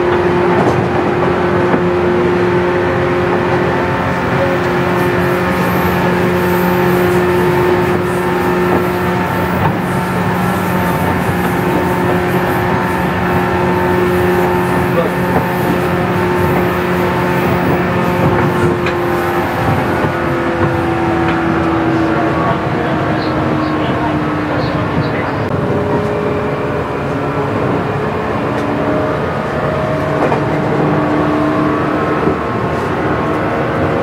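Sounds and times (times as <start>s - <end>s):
train rolling noise: 0.0s - 34.0s
electric train motor whine: 2.8s - 22.5s.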